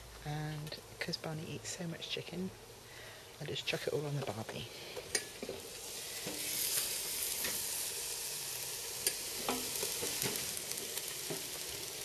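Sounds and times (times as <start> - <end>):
chicken sizzling on grill: 4.1 - 12.0.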